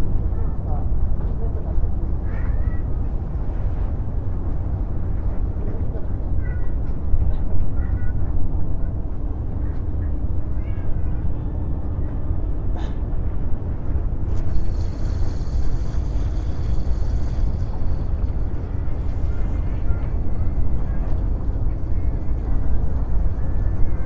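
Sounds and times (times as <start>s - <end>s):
wind rumble on microphone: 0.0s - 24.0s
cat meowing faintly: 10.5s - 11.7s.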